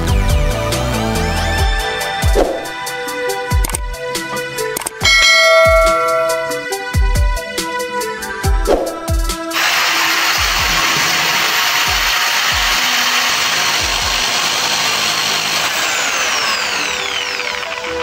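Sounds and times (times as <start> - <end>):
background music with a beat: 0.0 - 9.6
electric drill grinding: 9.4 - 18.0.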